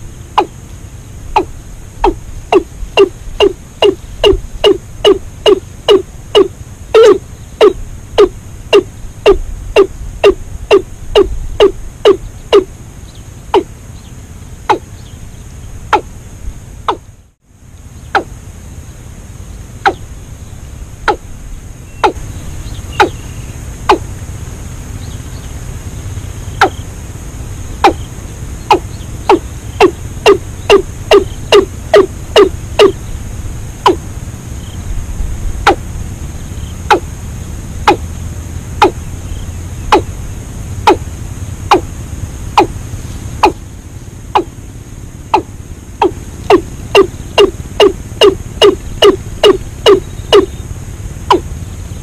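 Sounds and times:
bird call notes: 0.0 - 0.7, 1.3 - 16.1, 16.9 - 17.2, 17.8 - 18.4, 19.5 - 24.3, 25.0 - 26.9, 27.7 - 33.2, 38.8 - 40.2, 42.5 - 44.6, 45.3 - 50.7, 51.3 - 52.0.

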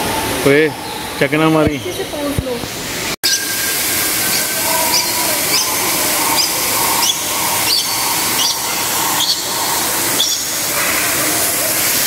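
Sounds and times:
bird chirping: 3.2 - 11.3
water rushing over waterfall: 3.3 - 12.0.

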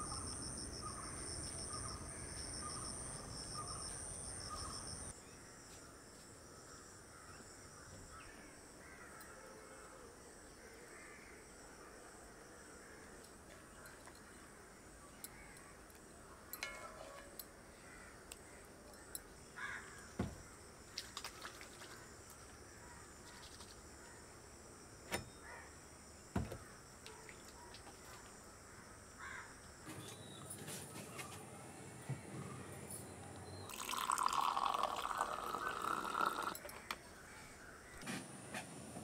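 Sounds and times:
bird calls: 0.0 - 5.2.

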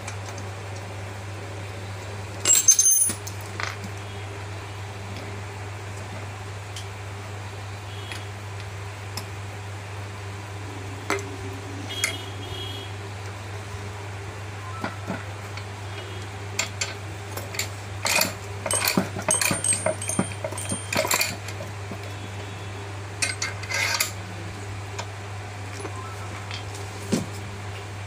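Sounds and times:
steady low hum: 0.0 - 28.0
capping machine clinking and rattling: 2.4 - 3.8, 16.6 - 22.1.

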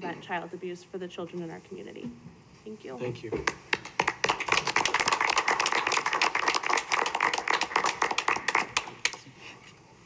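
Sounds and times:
people applauding: 3.5 - 9.3.

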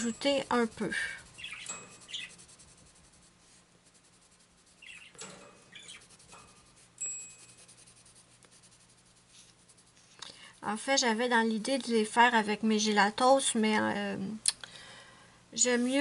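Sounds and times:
high pencil chirp: 0.0 - 10.0
pencil scratching on paper: 0.0 - 11.2.

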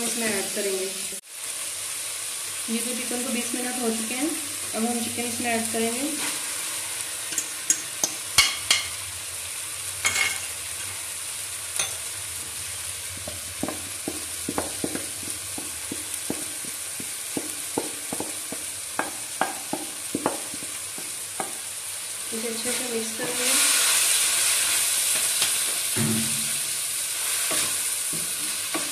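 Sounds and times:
chicken sizzling in a pan: 0.0 - 28.9
wooden spatula scraping a pan: 6.1 - 6.6, 22.6 - 25.8
sharp knocks on a pan: 13.3 - 21.6.

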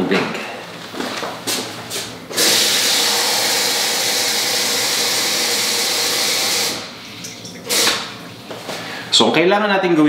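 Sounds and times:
water flowing into cup: 2.4 - 8.1
water running from tap: 2.4 - 8.3.

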